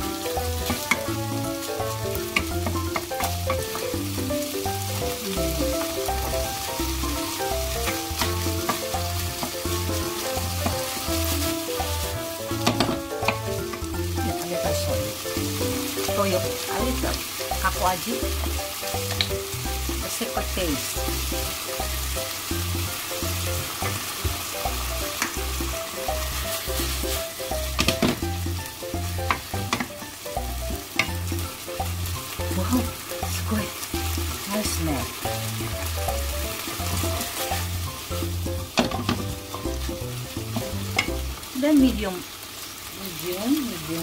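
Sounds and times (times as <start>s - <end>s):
music with steady bass beat: 0.0s - 41.4s
food sizzling in a frying pan: 0.0s - 44.0s
spatula clicking against pan: 31.0s - 31.2s, 40.9s - 41.2s.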